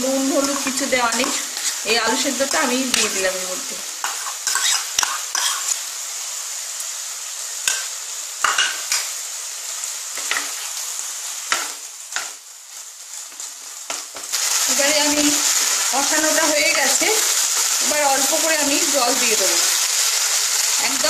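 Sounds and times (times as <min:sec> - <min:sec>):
food sizzling in a frying pan: 0:00.0 - 0:21.0
utensils scraping and knocking pan: 0:00.4 - 0:01.8, 0:04.0 - 0:05.7.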